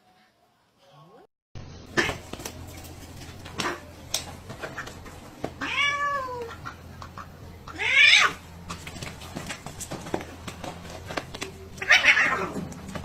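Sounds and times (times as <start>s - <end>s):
cat harsh cry: 5.6s - 6.6s, 7.7s - 8.4s, 11.8s - 12.6s
cat meowing: 5.6s - 6.6s, 7.7s - 8.4s, 11.8s - 12.6s.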